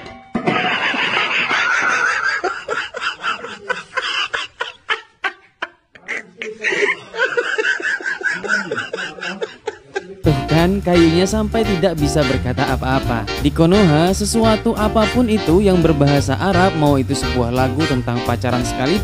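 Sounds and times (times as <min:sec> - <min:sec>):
person laughing hard: 0:00.5 - 0:10.2.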